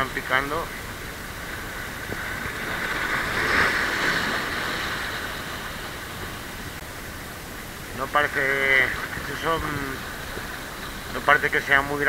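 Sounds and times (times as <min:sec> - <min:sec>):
sea wave washing over rocks: 0:00.4 - 0:06.6.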